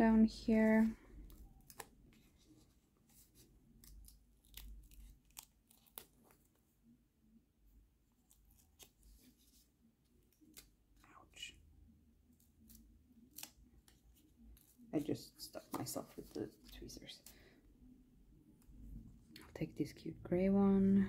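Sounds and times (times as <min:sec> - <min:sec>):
paper sticker rustling: 0:00.5 - 0:06.6.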